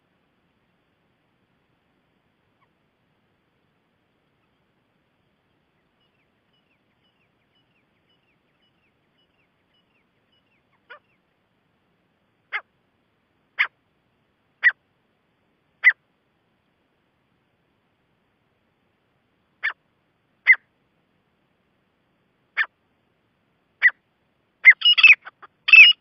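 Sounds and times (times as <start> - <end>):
francolin calling: 3.5 - 11.3, 14.6 - 14.8, 15.8 - 16.0, 19.6 - 19.8, 20.4 - 20.7, 24.6 - 26.0.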